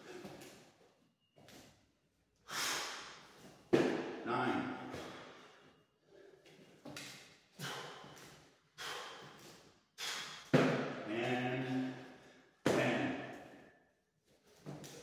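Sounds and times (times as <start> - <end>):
man breathing hard and grunting: 7.6 - 8.2, 8.8 - 10.5.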